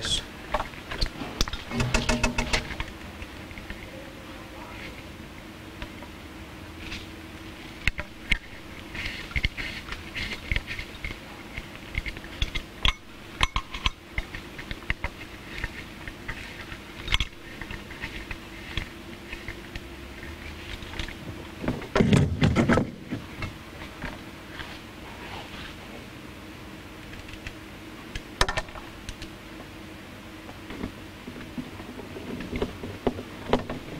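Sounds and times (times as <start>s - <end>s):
steady low hum: 0.0s - 33.9s
clatter of knocks: 1.4s - 2.8s.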